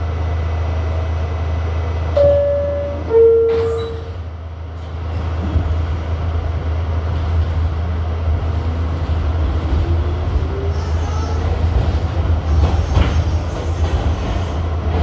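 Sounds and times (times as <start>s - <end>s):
subway train rumble: 0.0s - 15.0s
subway door chime: 2.1s - 4.3s.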